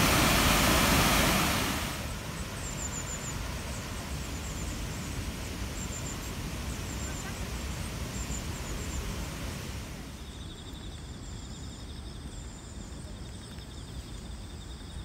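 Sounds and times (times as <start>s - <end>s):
outdoor hiss: 0.0s - 15.0s
insects trilling: 1.9s - 15.0s
faint high chirps: 2.0s - 9.2s.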